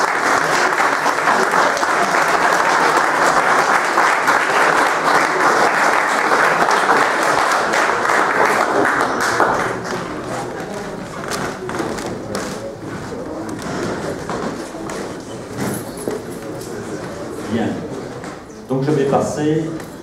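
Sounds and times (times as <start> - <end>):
small audience applauding: 0.0 - 15.4.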